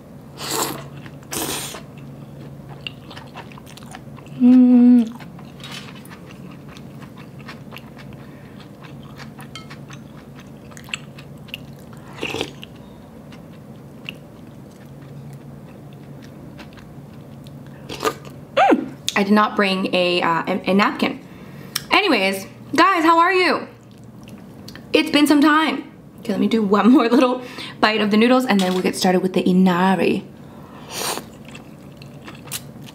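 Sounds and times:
chewing with wet mouth clicks: 0:01.8 - 0:04.4, 0:05.0 - 0:18.4, 0:31.2 - 0:32.9
person humming mmm: 0:04.3 - 0:05.2, 0:18.6 - 0:19.0.

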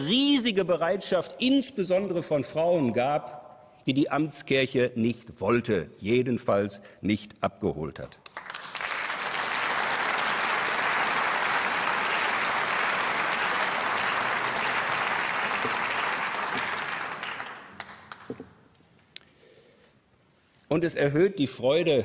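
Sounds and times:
audience applauding: 0:08.2 - 0:18.6.

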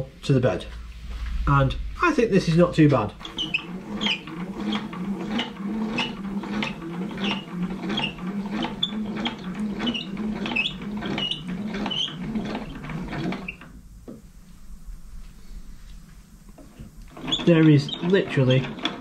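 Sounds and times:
milling table crank squeaking and ticking: 0:03.2 - 0:13.8, 0:16.6 - 0:19.0.

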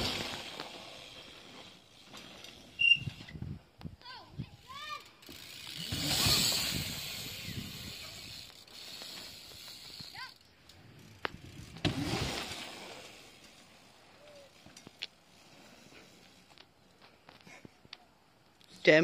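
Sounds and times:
bicycle tyres rolling over dirt: 0:00.0 - 0:18.7
bike clicks and knocks: 0:14.6 - 0:15.2.

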